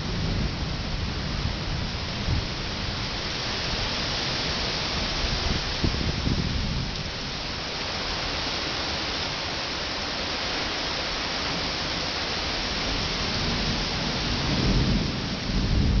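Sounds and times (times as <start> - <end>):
steady rain hissing: 0.0 - 16.0
low thunder rumble: 13.0 - 16.0.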